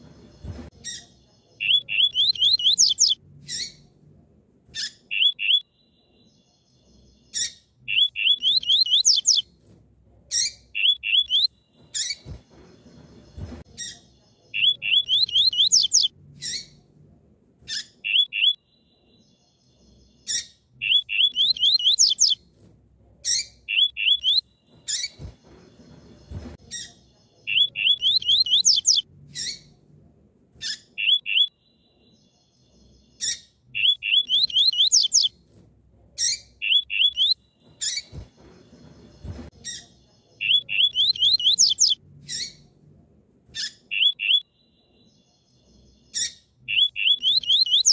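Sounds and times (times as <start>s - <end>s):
bird chirping: 0.0s - 3.9s, 4.8s - 9.5s, 10.3s - 16.8s, 17.6s - 22.4s, 23.2s - 29.8s, 30.6s - 35.4s, 36.2s - 42.7s, 43.6s - 47.9s.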